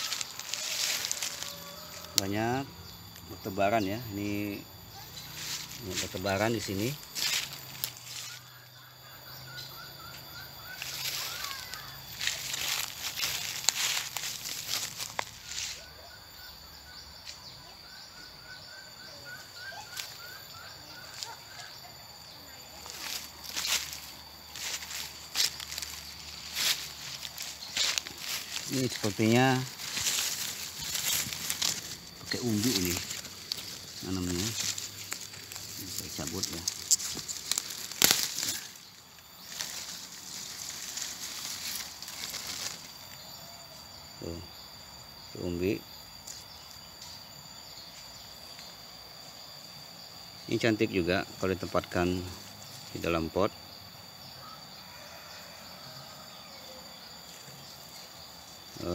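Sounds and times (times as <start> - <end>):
rustling: 0.0 - 2.2, 10.7 - 15.8, 22.8 - 43.2
high insect drone: 0.0 - 58.9
bird chirping: 1.2 - 13.7, 14.3 - 53.0.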